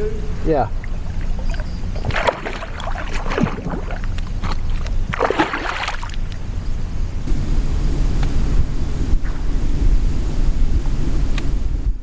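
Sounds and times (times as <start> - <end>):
wind rumble on microphone: 0.0 - 12.0
water splashing around kayak: 0.7 - 6.7.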